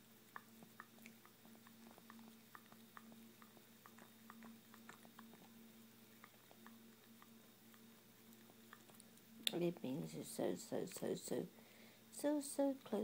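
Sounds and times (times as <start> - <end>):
faint steady hum: 0.0 - 13.0
small clicks and smacks: 0.2 - 9.7.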